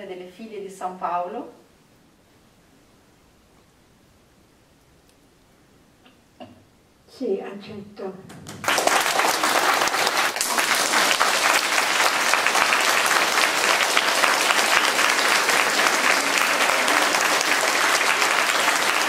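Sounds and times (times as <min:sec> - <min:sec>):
crowd applauding: 0:08.4 - 0:19.0.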